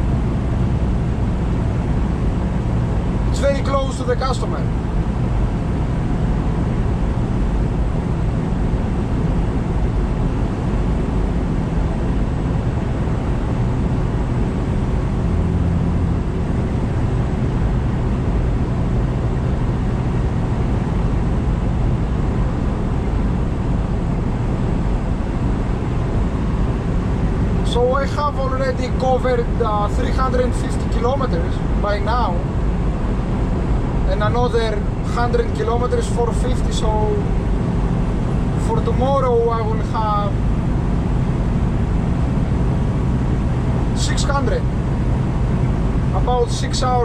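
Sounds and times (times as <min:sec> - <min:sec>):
truck diesel engine running: 0:00.0 - 0:47.0.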